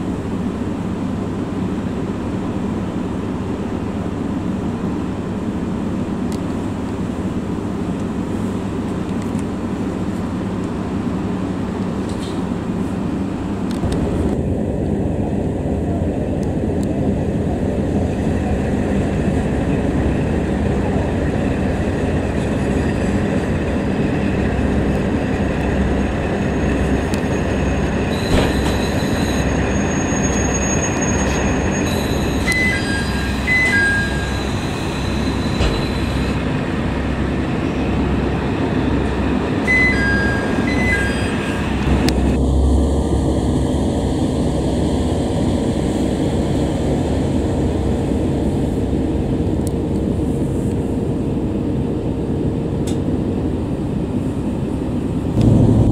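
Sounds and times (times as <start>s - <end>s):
rail running noise: 0.0s - 55.9s
wheel squeals: 25.9s - 36.4s
diesel engine throbbing: 41.7s - 49.4s, 55.2s - 55.9s.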